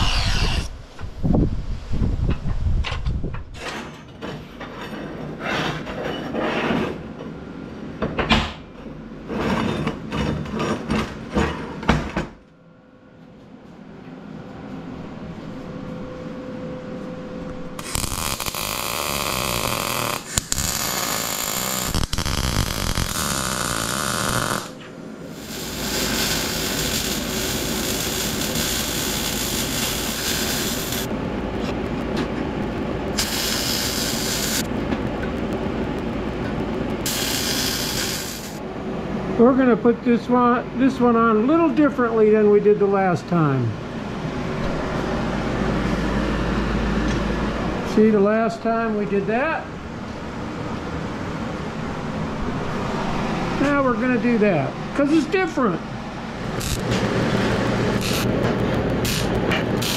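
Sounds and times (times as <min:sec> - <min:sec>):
power tool cutting steel: 0:00.0 - 0:00.7, 0:17.8 - 0:31.1, 0:33.2 - 0:34.7, 0:37.1 - 0:38.6, 0:56.6 - 0:57.0, 0:57.9 - 0:58.3, 0:59.0 - 0:59.9
welding hiss: 0:17.8 - 0:31.1, 0:33.1 - 0:34.7, 0:35.4 - 0:38.6, 0:56.4 - 0:59.9.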